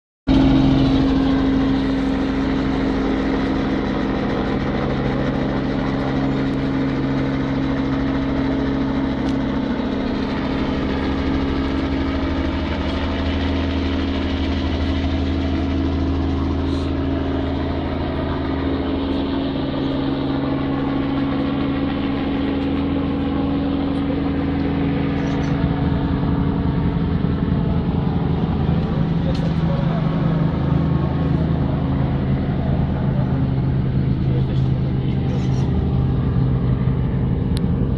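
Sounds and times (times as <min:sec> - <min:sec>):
engine idling: 0:00.3 - 0:37.9.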